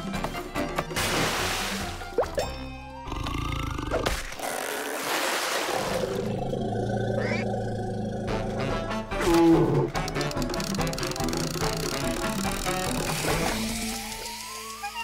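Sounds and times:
cartoon background music: 0.0 - 4.2, 8.1 - 15.0.

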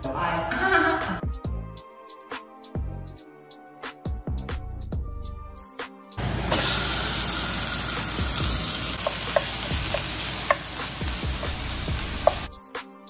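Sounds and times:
meat sizzling in hot oil: 6.3 - 12.5.

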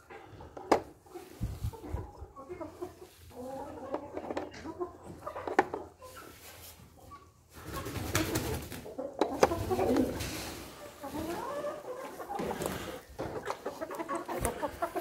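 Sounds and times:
chickens clucking: 0.0 - 15.0
rustling in straw: 9.7 - 12.9.

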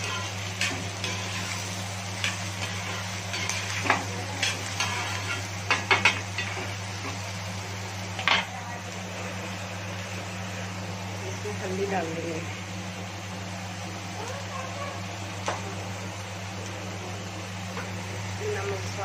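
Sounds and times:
metal spatula scraping a pan: 0.0 - 6.6
steady low hum: 0.0 - 19.0.

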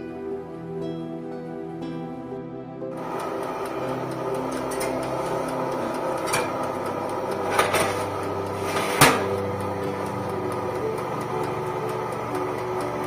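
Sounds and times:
metal pans clanking on wire rack: 6.2 - 6.5, 7.5 - 9.4.

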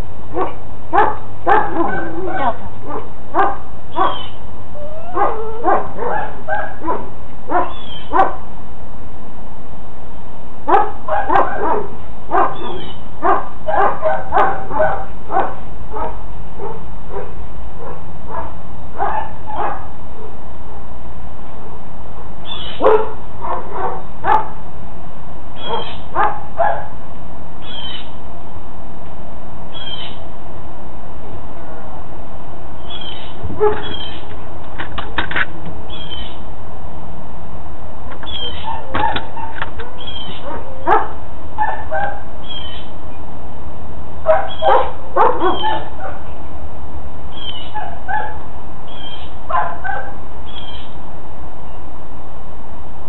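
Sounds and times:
dog barking: 0.3 - 4.3, 5.1 - 8.5, 10.7 - 20.4, 22.8 - 24.6, 25.6 - 27.0, 33.6 - 34.2, 38.3 - 42.3, 44.2 - 46.3, 47.6 - 48.4, 49.5 - 50.2.

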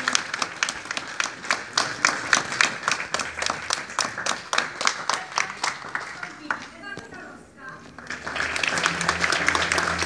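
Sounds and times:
audience clapping in time: 0.0 - 7.0, 7.8 - 10.0.

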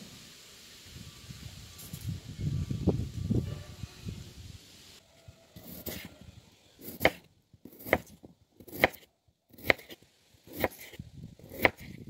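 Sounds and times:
knife cutting potato: 5.6 - 6.1, 6.8 - 12.0.

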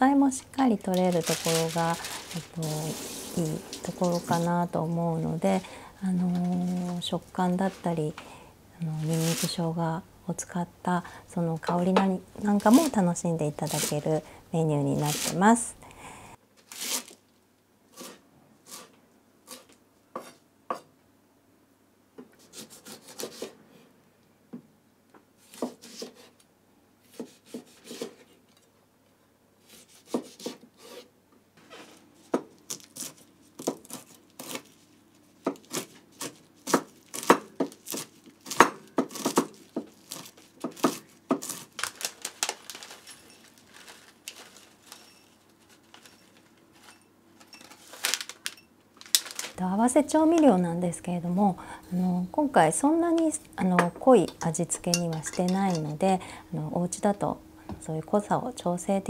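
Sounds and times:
knife chopping on wooden board: 27.1 - 28.2, 29.8 - 31.0, 35.4 - 39.9.

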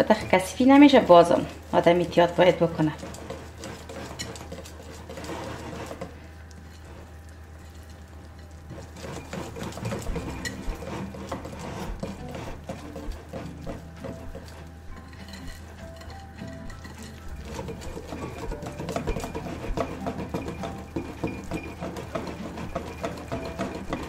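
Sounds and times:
whisk clicking against glass bowl: 8.9 - 24.0.

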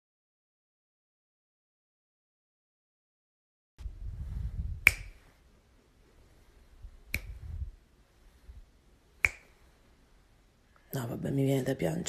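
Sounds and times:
sharp snaps: 4.8 - 5.4, 7.0 - 7.6, 9.2 - 9.8.

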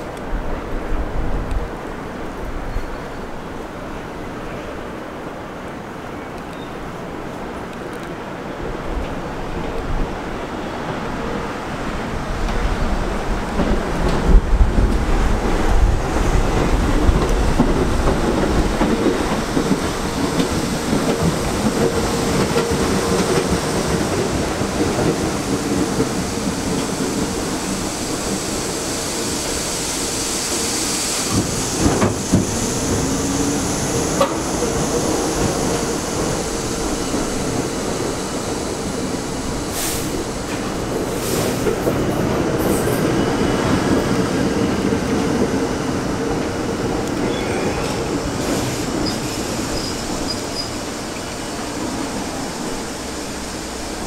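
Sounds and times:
subway train running noise: 0.0 - 54.0
wheel squeal: 47.2 - 51.3.

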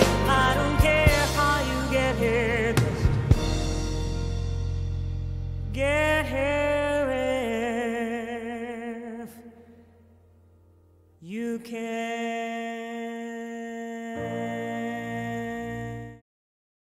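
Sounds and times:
person singing long notes: 0.0 - 3.5, 11.2 - 16.2
low bass note: 0.0 - 7.3.

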